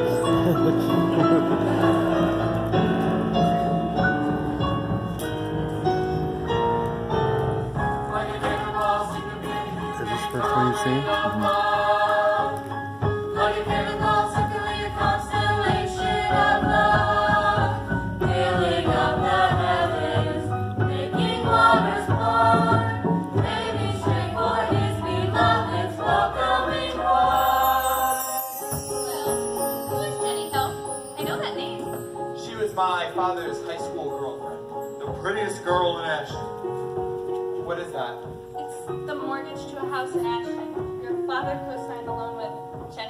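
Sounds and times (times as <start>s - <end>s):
chorus singing: 0.0s - 4.6s, 7.7s - 32.9s
piano: 0.0s - 43.0s.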